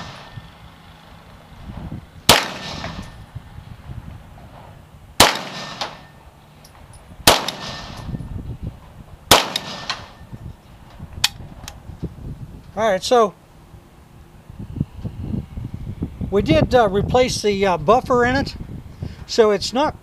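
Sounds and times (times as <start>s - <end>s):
pistol shots: 2.3s - 3.1s, 5.2s - 6.1s, 7.2s - 8.1s, 9.3s - 10.2s.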